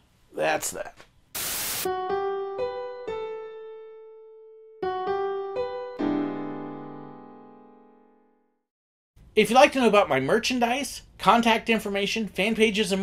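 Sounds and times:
electric piano jingle: 1.9s - 8.4s.

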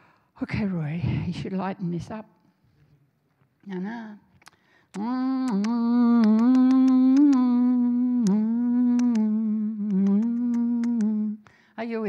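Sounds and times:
woman singing na-na syllables: 4.9s - 12.0s.

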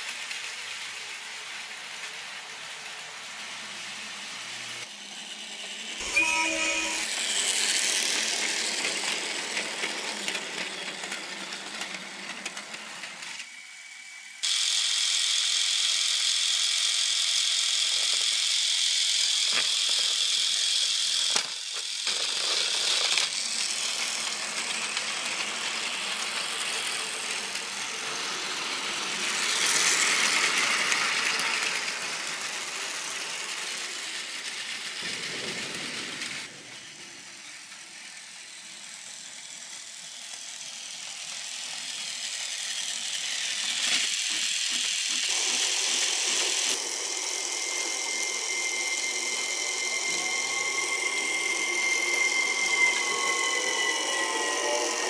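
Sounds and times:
toy train motor whirring: 0.0s - 55.0s
wheels rattling on plastic rails: 19.2s - 36.6s.

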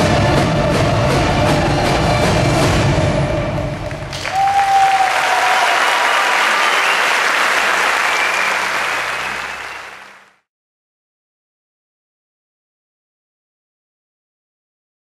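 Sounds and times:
drum-led music: 0.0s - 4.9s
audience applauding: 3.8s - 10.4s.

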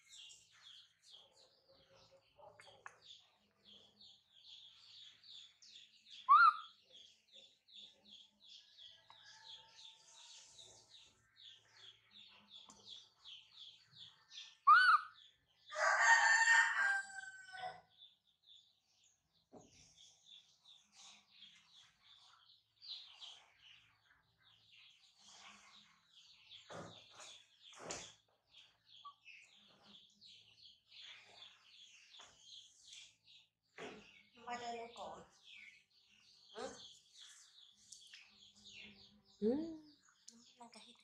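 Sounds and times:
small bird chirping: 0.0s - 16.6s, 18.0s - 41.0s
loud bird call: 14.7s - 15.2s.

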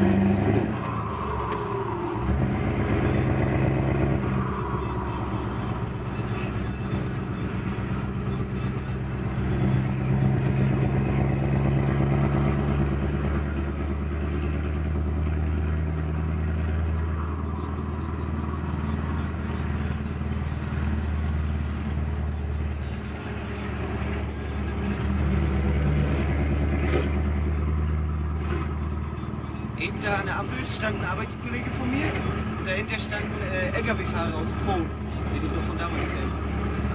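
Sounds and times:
truck diesel engine from cab: 0.0s - 36.9s.

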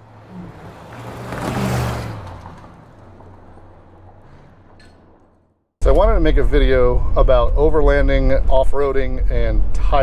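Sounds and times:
car driving past: 0.0s - 5.4s.

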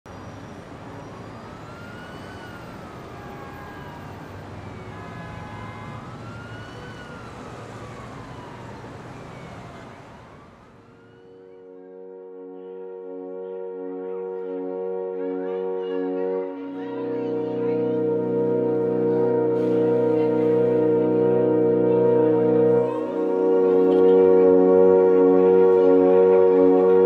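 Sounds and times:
emergency siren wailing: 0.1s - 27.0s
sustained musical chord: 11.2s - 27.0s.

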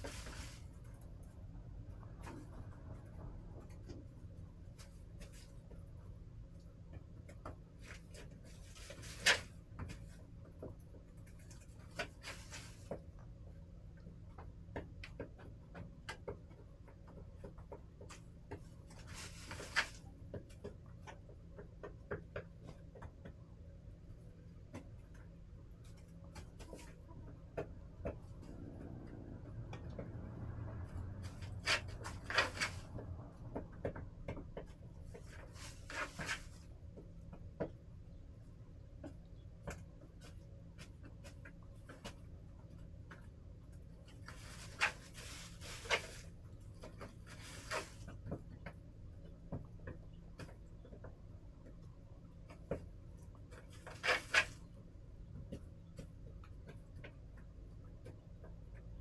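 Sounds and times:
rustling scrapes: 0.0s - 1.4s, 7.7s - 10.3s, 11.1s - 13.0s, 18.1s - 20.2s, 30.8s - 33.1s, 35.1s - 36.8s, 43.6s - 48.4s, 53.4s - 54.8s
hens pecking and tapping: 0.0s - 59.0s.

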